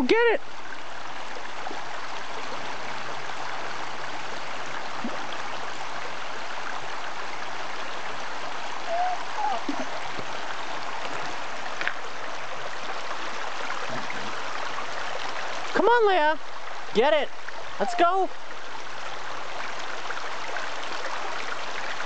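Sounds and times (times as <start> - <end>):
creek water running over stones: 0.0 - 22.0.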